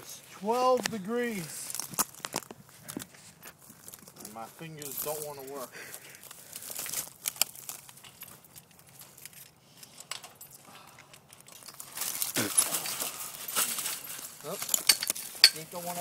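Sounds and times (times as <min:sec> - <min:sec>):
rustling: 0:00.0 - 0:16.0.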